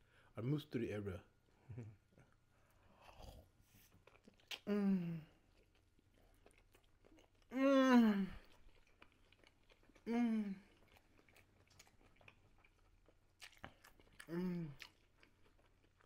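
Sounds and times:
person chewing food: 2.1 - 7.6, 8.4 - 16.0
person humming mmm: 4.7 - 5.3, 10.1 - 10.6, 14.3 - 14.8.

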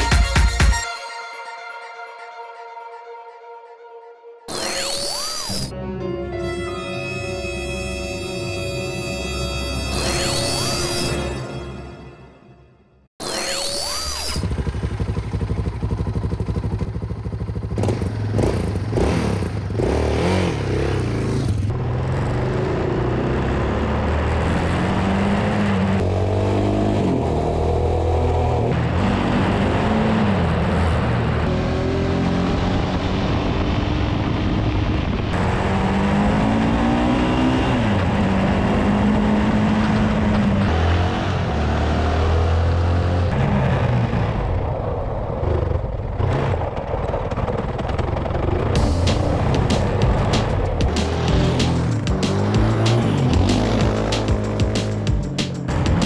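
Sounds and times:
atv engine revving: 13.2 - 33.3, 35.4 - 44.6, 45.4 - 56.0.

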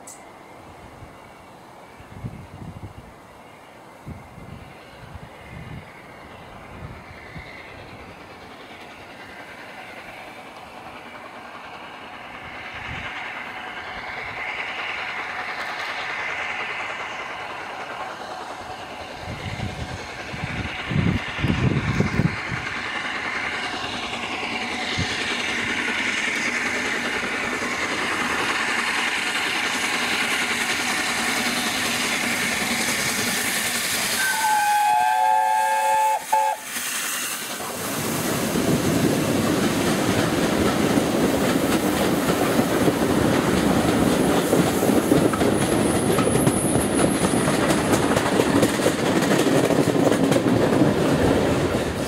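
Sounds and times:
steam locomotive approaching: 0.0 - 52.0
steam locomotive whistle: 33.9 - 37.6.

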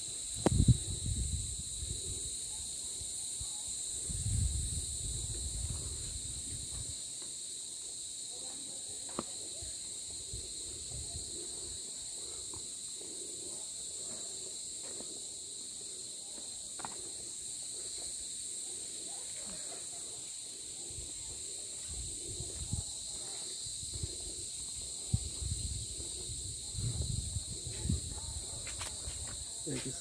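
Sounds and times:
insects droning: 0.0 - 30.0
wind rumbling on microphone: 0.2 - 2.4, 3.9 - 7.0, 10.1 - 11.8, 20.9 - 29.4.

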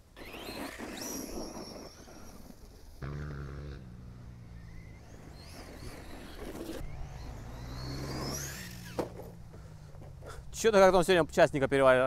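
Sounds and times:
electric motor whining: 0.0 - 9.6.

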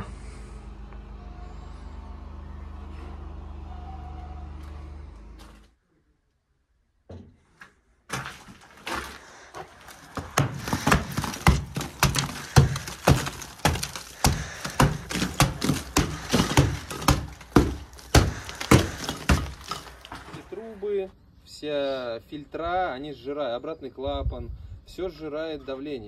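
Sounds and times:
plaster chunks crumbling down: 8.1 - 20.6.

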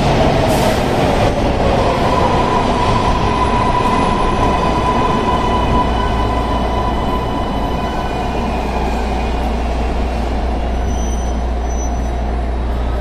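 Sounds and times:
subway train rumbling: 0.0 - 13.0.

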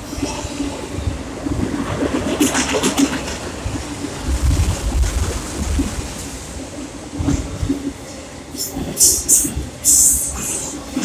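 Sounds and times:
freight train wheels rattling: 0.0 - 11.0
hiss bursts: 8.6 - 10.8.

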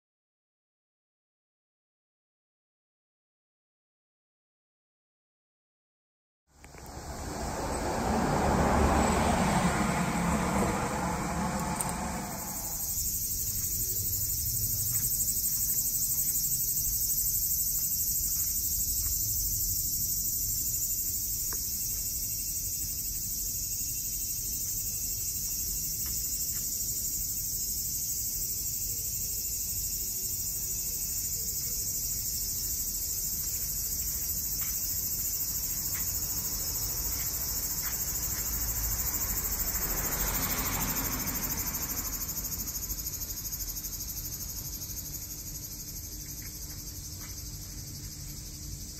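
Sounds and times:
insects droning: 6.5 - 48.9
broad rushing noise: 6.7 - 12.9
low rumble: 6.8 - 12.9.

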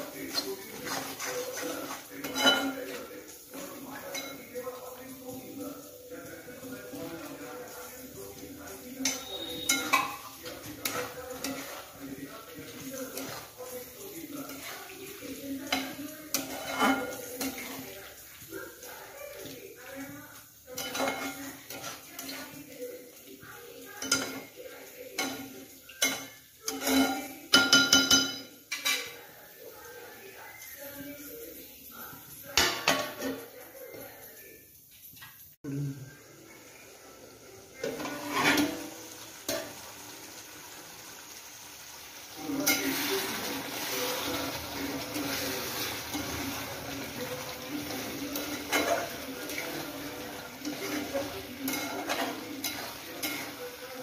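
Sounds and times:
spatula scraping a frying pan: 0.0 - 5.6, 6.6 - 27.4, 37.8 - 39.8, 42.5 - 54.0
spoon stirring thick gravy: 0.0 - 34.1, 37.4 - 39.9, 42.3 - 54.0.

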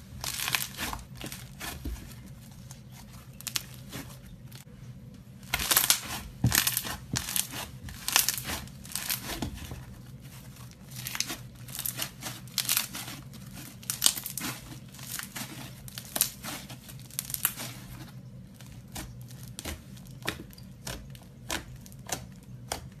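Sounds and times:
slime crackling and popping: 0.2 - 1.7, 5.5 - 9.7, 10.8 - 17.9.

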